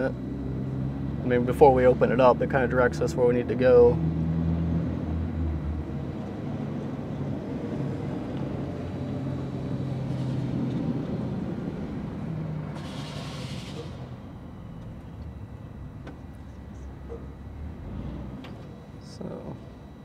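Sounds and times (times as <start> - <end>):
diesel truck engine idling: 0.0 - 19.8
brief hiss: 12.8 - 14.1.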